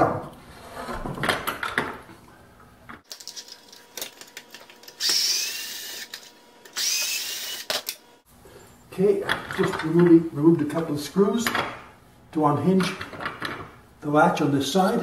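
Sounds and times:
cordless drill motor whining: 4.9 - 7.8.

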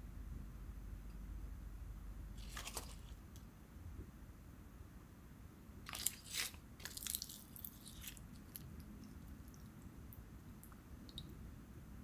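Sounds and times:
seaweed sheets crackling: 5.9 - 8.8.

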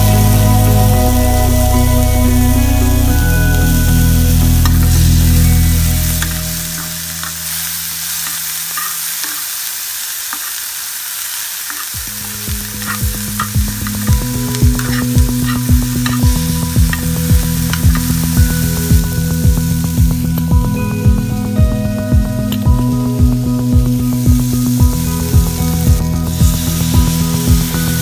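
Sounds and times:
background music with steady beat: 0.0 - 8.4, 12.0 - 28.0
vegetables sizzling in hot oil: 0.0 - 28.0
steel spoon scraping and stirring: 6.2 - 10.8, 11.6 - 12.0, 12.8 - 18.1.

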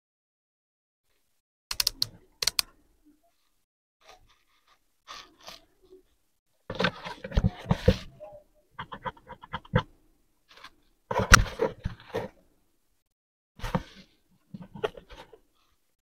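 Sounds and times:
sharp plastic clicks: 1.7 - 2.7
plastic lamp knocking and scraping: 8.8 - 9.9.

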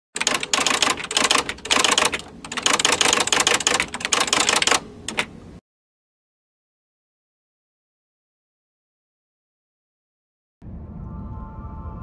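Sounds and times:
typewriter keys clacking: 0.2 - 5.3.

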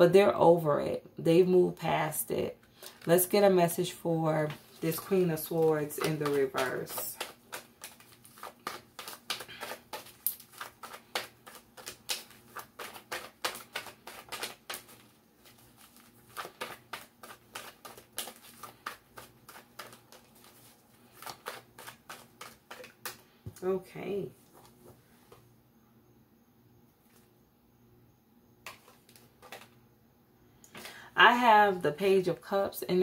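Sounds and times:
cards being shuffled by hand: 4.5 - 23.6.

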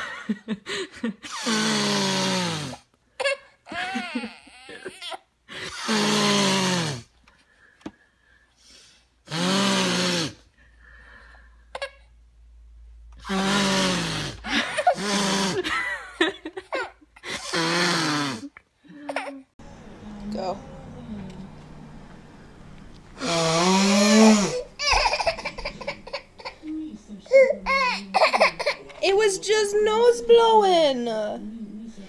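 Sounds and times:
person blowing nose loudly: 1.3 - 2.8, 5.6 - 7.1, 9.3 - 10.4, 13.2 - 15.7, 17.3 - 18.5, 23.2 - 26.5.

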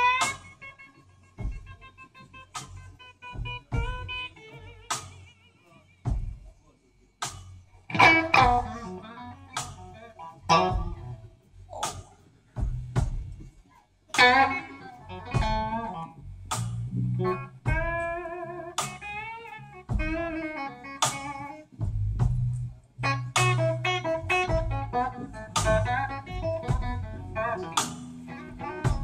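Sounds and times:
electric guitar playing blues: 0.0 - 5.7, 7.8 - 11.8, 14.1 - 29.0.

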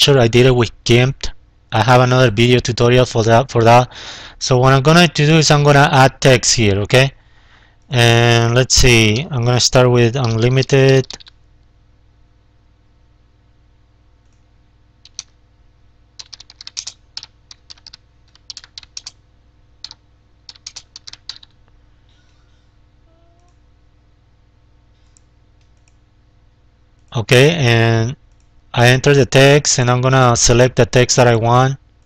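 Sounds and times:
faint steady hum: 0.0 - 32.0
computer keyboard typing: 10.2 - 11.4, 15.0 - 15.4, 16.2 - 19.2, 19.8 - 21.6.

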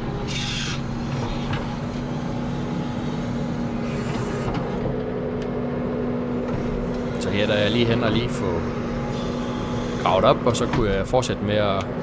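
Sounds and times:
excavator engine running: 0.0 - 12.0.

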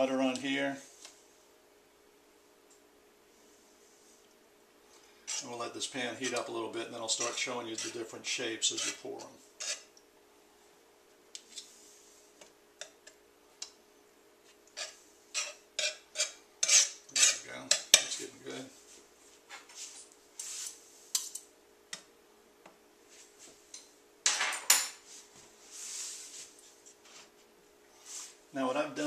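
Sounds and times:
faint steady hum: 0.0 - 29.0
butter knife scraping on griddle: 5.3 - 5.6, 7.1 - 9.9, 14.8 - 18.1.

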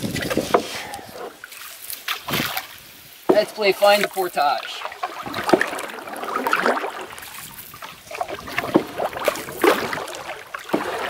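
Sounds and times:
paddle strokes splashing water: 0.0 - 11.0.

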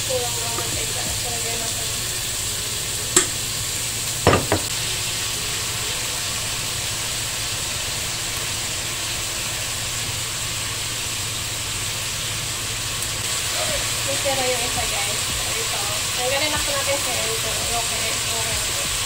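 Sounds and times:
food sizzling in a frying pan: 0.0 - 19.0
quick knocks: 4.3 - 4.7.

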